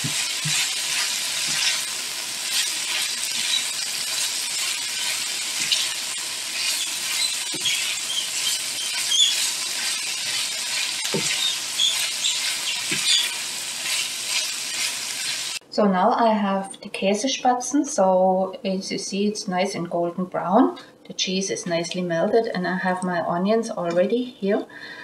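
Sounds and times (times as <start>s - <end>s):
onions and bacon sizzling: 0.0s - 15.6s.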